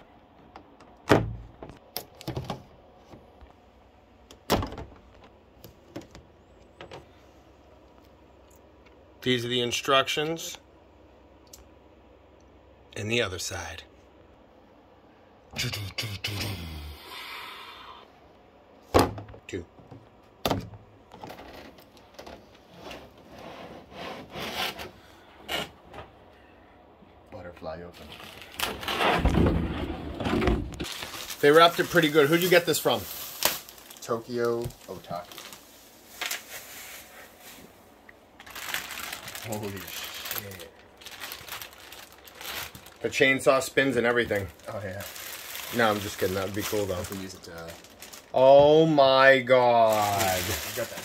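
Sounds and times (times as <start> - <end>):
plastic crinkling rustles: 28.0 - 28.9, 30.7 - 37.8, 38.4 - 51.0
plastic packaging cracking: 30.8 - 35.6, 38.4 - 43.1, 44.2 - 48.4, 49.8 - 51.0.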